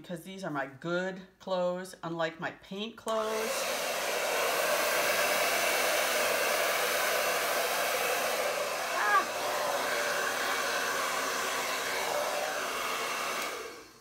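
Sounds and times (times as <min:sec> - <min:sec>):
hair dryer blowing: 0:03.1 - 0:14.0.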